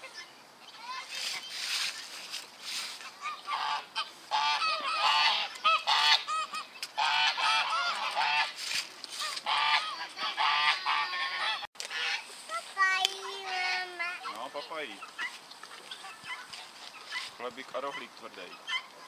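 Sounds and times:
geese honking: 3.2 - 8.6, 9.2 - 12.3.

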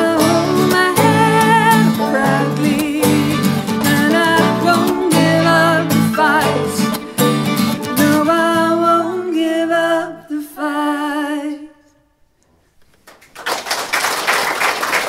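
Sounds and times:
acoustic guitar: 0.0 - 10.5
voices singing: 0.0 - 11.7
fiddle bowed with vibrato: 0.2 - 8.8
audience applause: 13.1 - 15.0.

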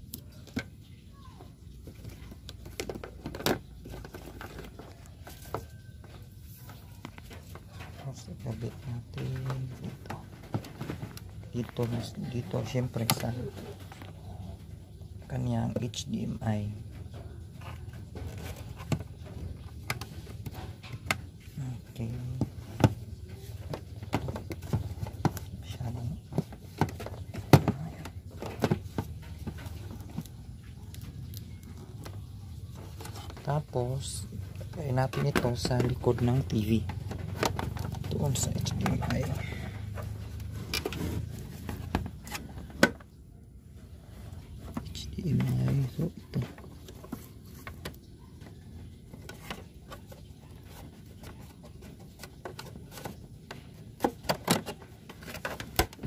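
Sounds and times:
rustling handling noise: 0.0 - 56.0
cable plugs knocking and clicking: 22.2 - 43.2.

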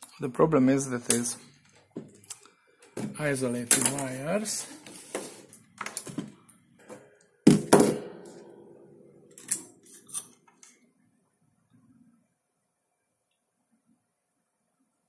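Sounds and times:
objects thunking on workbench: 6.0 - 8.4.

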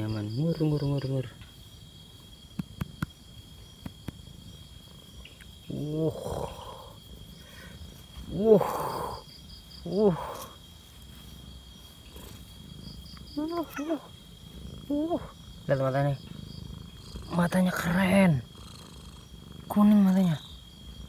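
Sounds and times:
cat purring: 2.5 - 21.0
cat meowing: 13.4 - 14.1.

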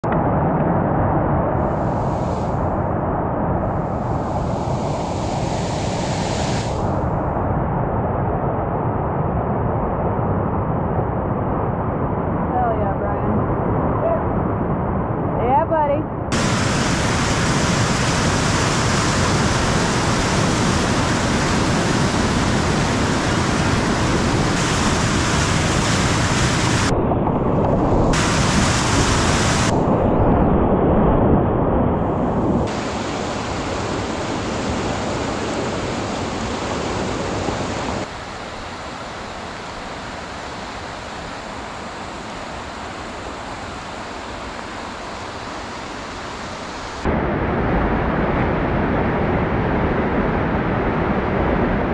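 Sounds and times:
river rapid rushing: 16.3 - 26.9, 28.2 - 29.8, 32.7 - 48.3.

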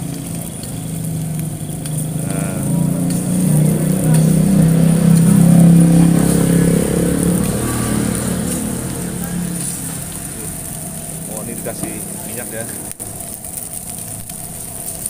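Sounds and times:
vehicle engine passing by: 0.0 - 14.1.

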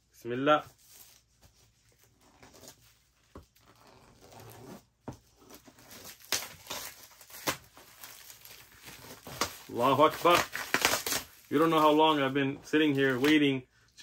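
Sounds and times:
knife slicing packing tape: 8.9 - 11.4.

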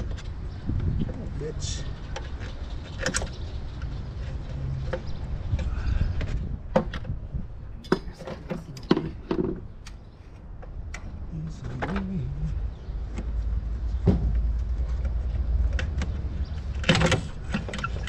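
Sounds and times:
clicks and knocks of car parts: 2.0 - 12.2, 13.0 - 18.0.

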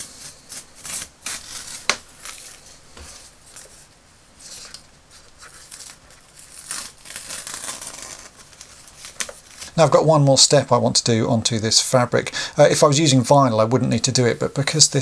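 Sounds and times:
paper rustling: 0.0 - 9.8.

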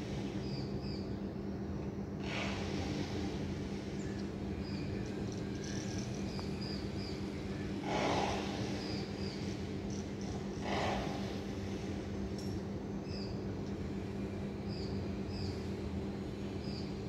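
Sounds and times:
distant traffic hum: 2.2 - 17.0
low drone: 6.3 - 12.6.

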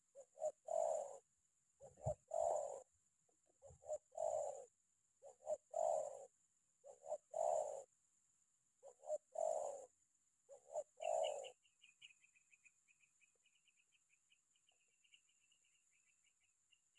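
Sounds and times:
dove cooing: 0.0 - 8.0, 8.8 - 11.7.

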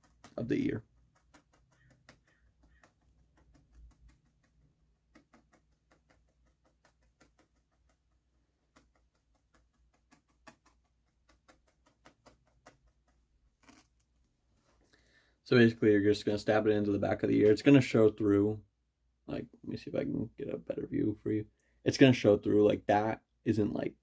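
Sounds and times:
felting needle clicks: 0.0 - 14.3.

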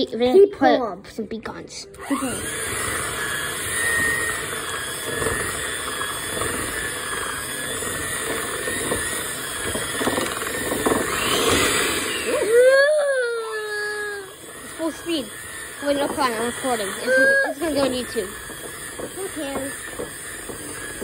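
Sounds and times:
electric hand mixer running: 1.9 - 21.0.

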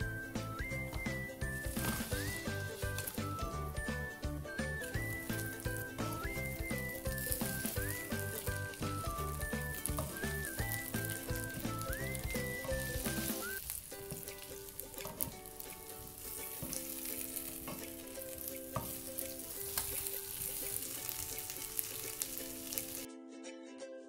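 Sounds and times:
chicken wings sizzling in a pan: 0.1 - 23.1
spatula clicking against pan: 14.1 - 22.3.

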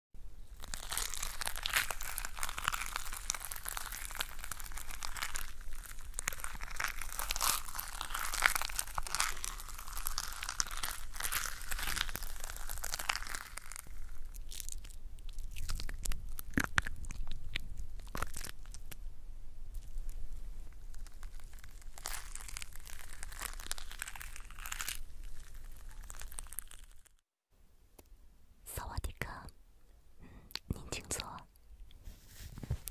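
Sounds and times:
foam crackling under brush: 0.6 - 19.0, 19.8 - 27.1.

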